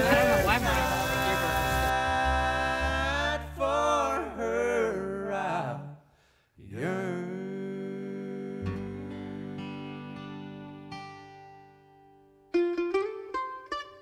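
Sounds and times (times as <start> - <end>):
bluegrass song with singing: 0.0 - 10.6.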